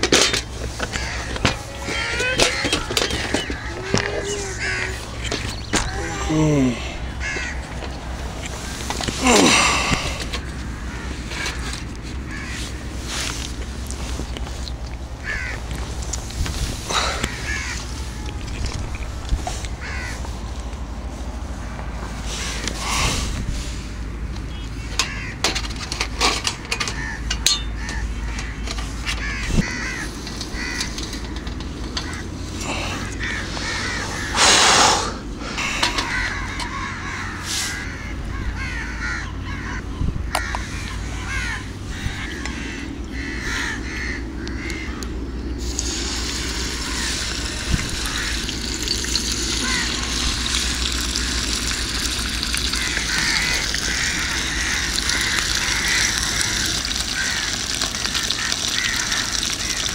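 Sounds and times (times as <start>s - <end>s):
loud rush of noise: 32.9s - 36.0s
fish sizzling in hot oil: 45.7s - 59.9s.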